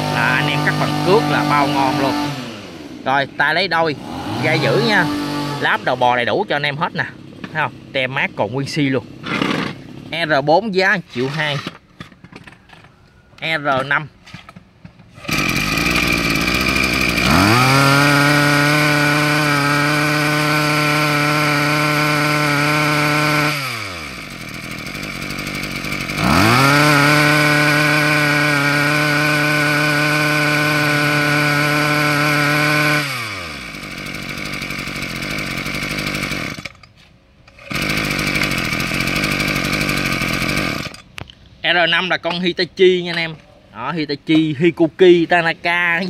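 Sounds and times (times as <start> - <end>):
brush cutter engine revving: 0.0 - 12.7, 13.4 - 41.2
recoil starter pull: 9.2 - 10.2, 11.1 - 41.4.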